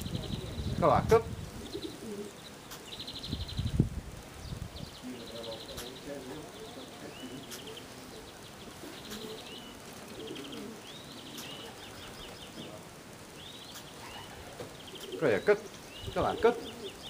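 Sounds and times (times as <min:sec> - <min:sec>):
pigeons cooing softly: 0:00.0 - 0:17.0
small bird trilling: 0:13.4 - 0:17.0.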